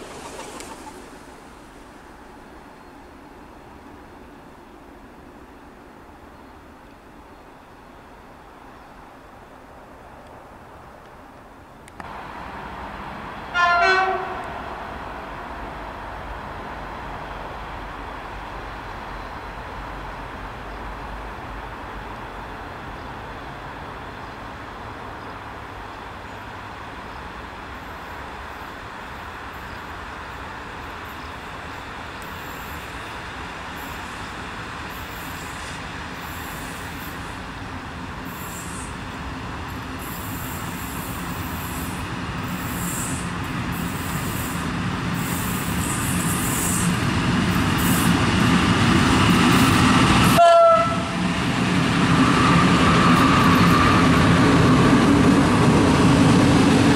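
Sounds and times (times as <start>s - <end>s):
train rumbling on rails: 0.0s - 56.9s
train horn: 13.5s - 14.6s, 50.2s - 51.2s.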